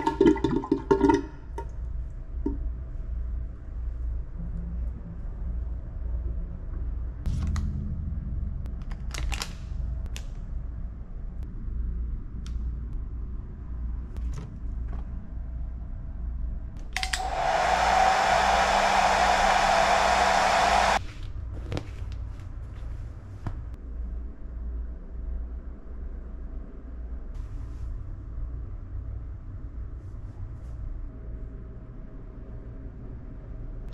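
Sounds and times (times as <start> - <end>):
low steady hum: 0.0 - 33.9
hair dryer blowing: 17.0 - 21.0.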